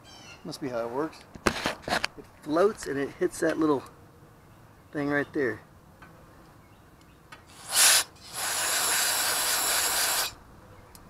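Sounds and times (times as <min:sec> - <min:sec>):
aerosol spraying: 0:07.5 - 0:10.4.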